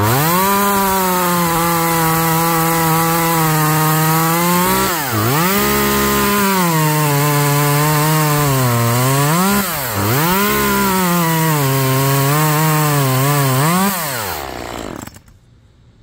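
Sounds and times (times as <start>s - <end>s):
chainsaw cutting through log: 0.0s - 15.4s.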